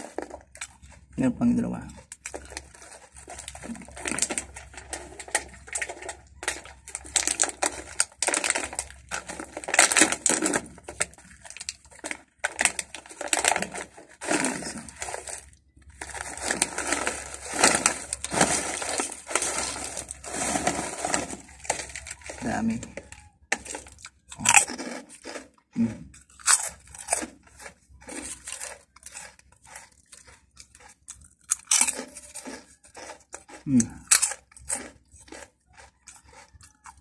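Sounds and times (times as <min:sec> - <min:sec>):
foil snack bag crinkling: 0:00.0 - 0:01.1, 0:01.9 - 0:25.5, 0:26.2 - 0:37.0
chips crunching: 0:00.0 - 0:37.0
chips pouring out: 0:02.2 - 0:22.8
bag tearing open: 0:02.4 - 0:24.7.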